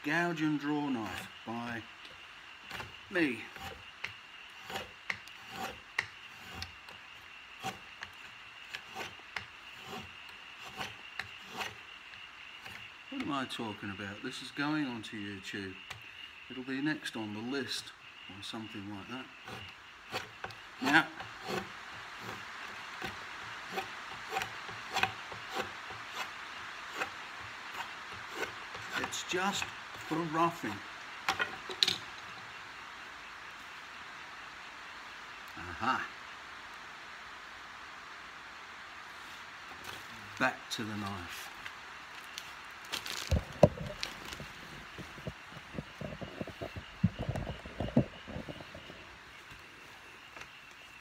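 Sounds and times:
draw knife shaving wood: 0:02.6 - 0:11.9, 0:12.6 - 0:12.9, 0:19.4 - 0:26.3, 0:26.9 - 0:30.3.

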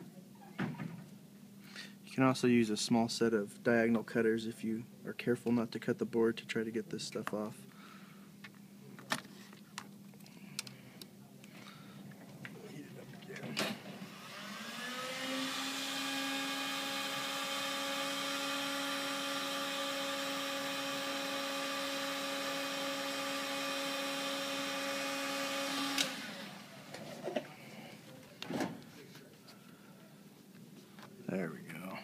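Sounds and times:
heat gun fan whine: 0:13.3 - 0:28.6.

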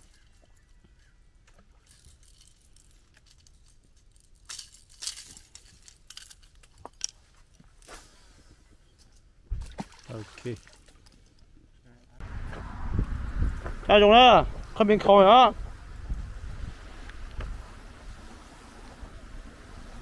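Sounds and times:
rustling: 0:00.0 - 0:09.2.

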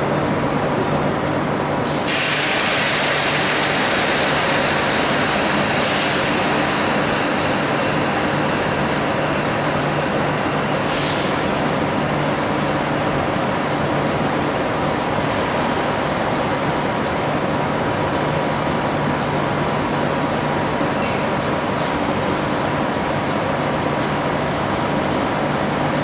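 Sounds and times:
electric train humming: 0:00.0 - 0:26.0
train air hiss: 0:01.8 - 0:13.6.

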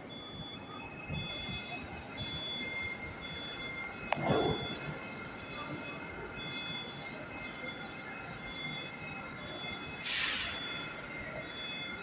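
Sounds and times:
sharp hiss of air: 0:10.0 - 0:10.6.

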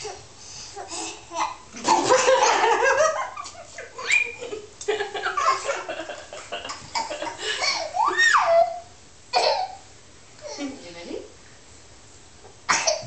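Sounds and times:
girl laughing and squealing: 0:01.9 - 0:06.0, 0:07.2 - 0:08.9.

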